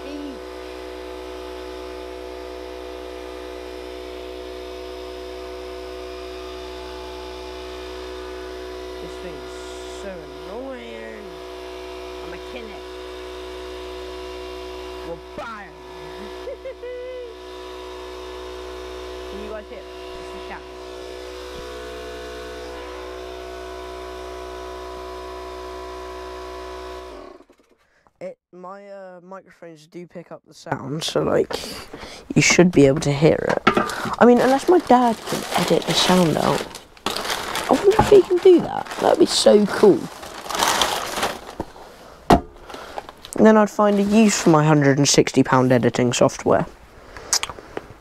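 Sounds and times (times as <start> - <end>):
air compressor motor hum: 0.0 - 27.8, 31.2 - 48.0.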